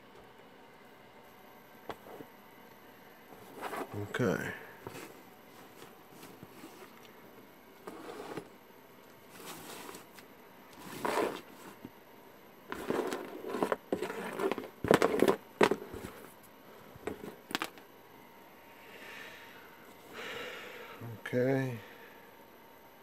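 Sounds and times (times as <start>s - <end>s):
handling noises on tabletop: 3.3s - 4.2s, 4.8s - 7.1s, 7.8s - 8.6s, 9.3s - 12.0s, 12.7s - 17.8s.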